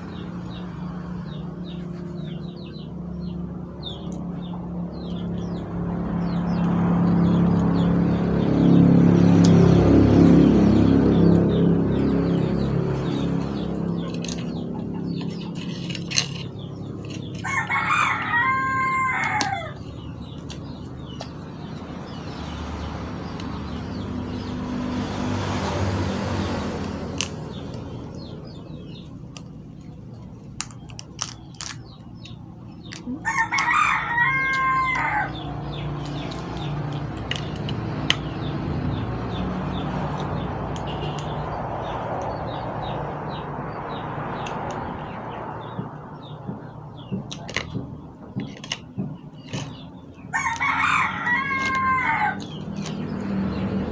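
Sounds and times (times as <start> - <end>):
rooster crowing: 17.4 - 19.8, 33.2 - 35.7, 50.3 - 52.6
crab shell cracking by hand: 30.5 - 33.8.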